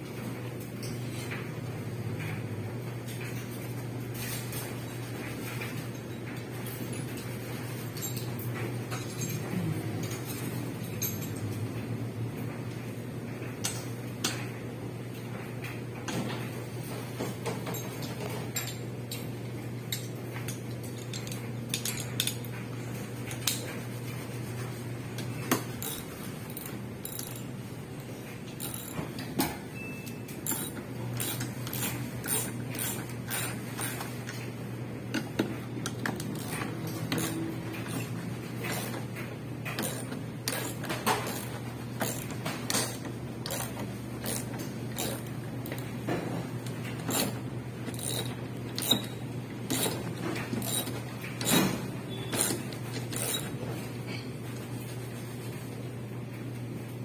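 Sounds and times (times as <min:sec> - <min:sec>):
metallic clinks of tools: 0:08.0 - 0:11.6, 0:20.9 - 0:22.5, 0:25.8 - 0:27.5, 0:28.6 - 0:34.0, 0:39.7 - 0:45.9, 0:46.9 - 0:53.5.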